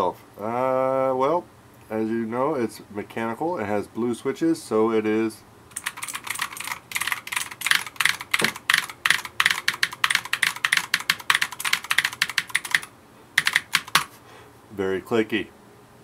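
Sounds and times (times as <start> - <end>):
clicky mechanical keyboard typing: 5.7 - 14.1.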